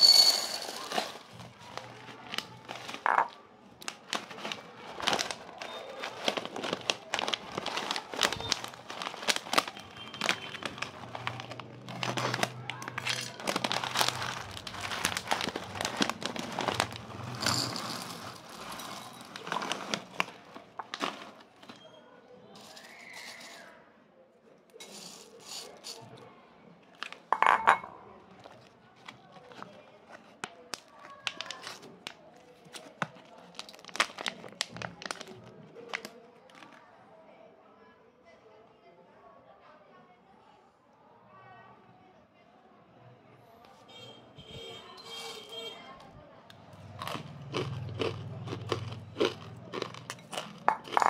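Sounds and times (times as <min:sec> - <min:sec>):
snack packet crinkling: 0:00.0 - 0:21.8, 0:28.4 - 0:36.8, 0:46.8 - 0:51.0.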